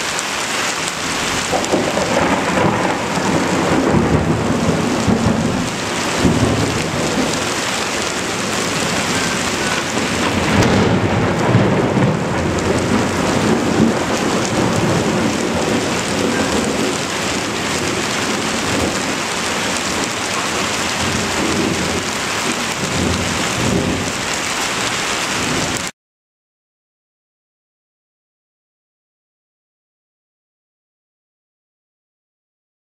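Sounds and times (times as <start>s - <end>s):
steady rain falling: 0.0s - 25.9s
thunder rumbling: 0.7s - 25.9s.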